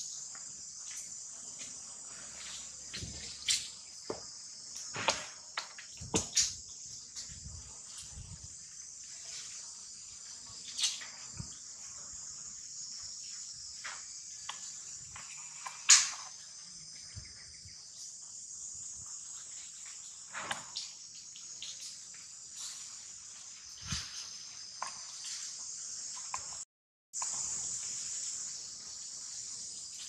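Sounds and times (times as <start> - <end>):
insects chorus: 0.0 - 30.0.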